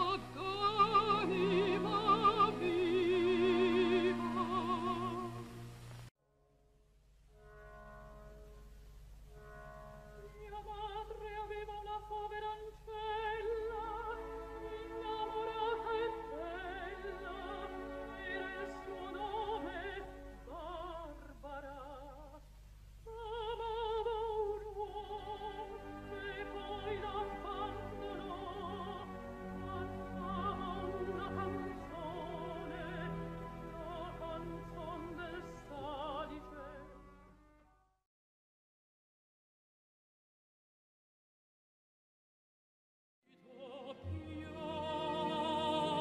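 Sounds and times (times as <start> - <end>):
soprano singing opera: 0.0 - 5.5, 10.2 - 22.4, 23.1 - 37.0, 43.3 - 46.0.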